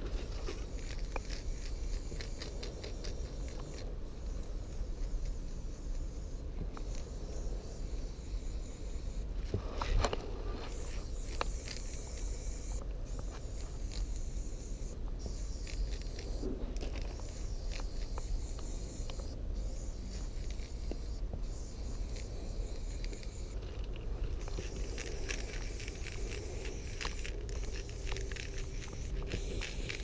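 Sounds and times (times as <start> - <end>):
spray paint can hissing: 0.4 - 9.3, 10.7 - 23.6, 24.4 - 30.0.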